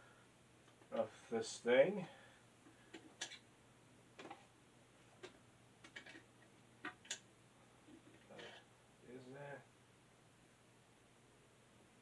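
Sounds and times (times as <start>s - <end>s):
vinyl records clicking when handled: 2.7s - 3.4s, 4.2s - 4.5s, 5.2s - 7.3s.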